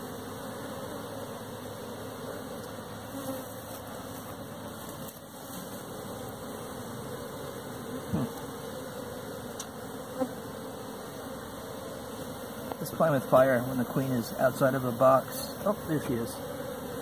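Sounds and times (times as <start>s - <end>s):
honeybees buzzing: 0.0s - 17.0s.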